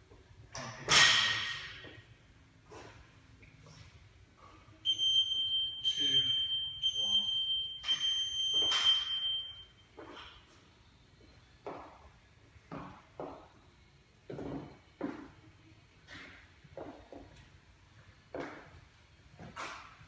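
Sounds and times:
timer beeping: 4.8s - 9.9s.

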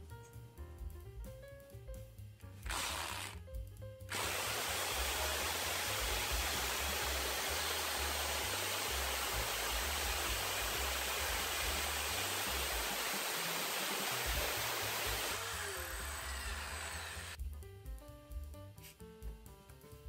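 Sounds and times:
hammer drill boring into brick: 2.7s - 3.4s, 4.1s - 17.4s.

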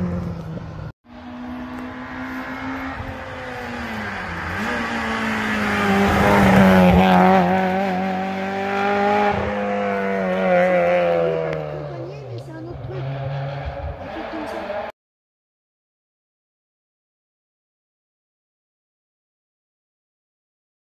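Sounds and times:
rally car engine passing: 0.0s - 14.9s.

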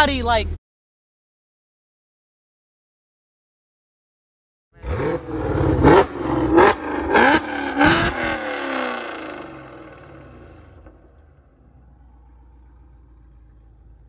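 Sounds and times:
car engine revving: 4.8s - 14.0s.

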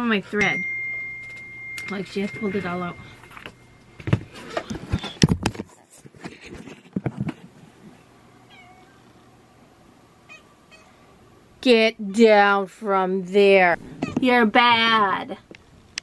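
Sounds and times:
footsteps: 2.3s - 7.4s.

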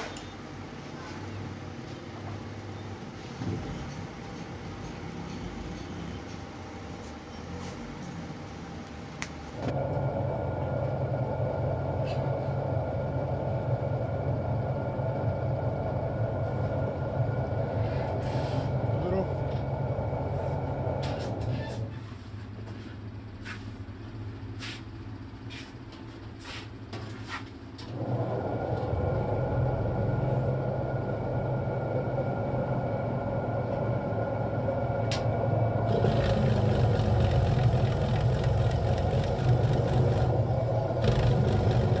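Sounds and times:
electric motor humming: 35.8s - 42.0s.

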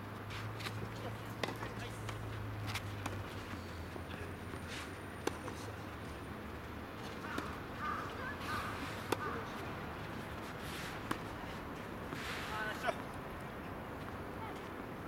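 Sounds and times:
tennis ball struck by racket: 0.6s - 3.2s, 5.2s - 5.7s, 7.2s - 9.6s, 10.2s - 11.4s.

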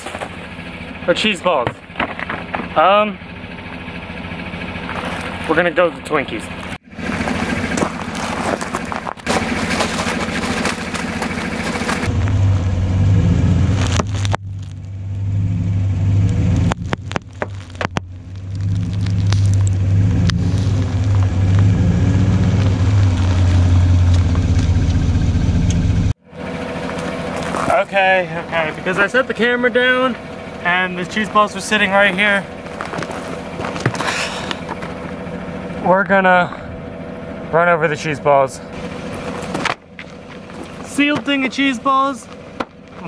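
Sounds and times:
tyres rolling over gravel: 0.0s - 12.5s, 13.6s - 15.0s, 16.6s - 25.1s, 26.3s - 36.7s, 38.0s - 43.0s
truck engine droning: 0.0s - 43.0s
plastic-wrapped box crushed: 7.8s - 12.1s.

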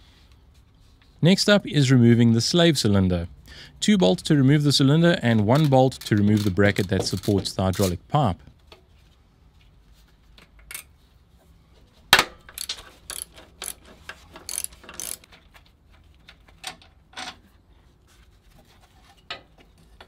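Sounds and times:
metallic clicks of spanner: 10.6s - 10.9s, 12.5s - 15.4s.

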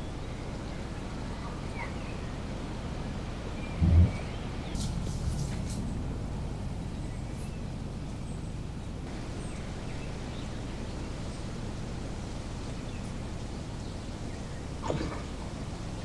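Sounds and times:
wind rumbling on microphone: 0.0s - 16.0s.

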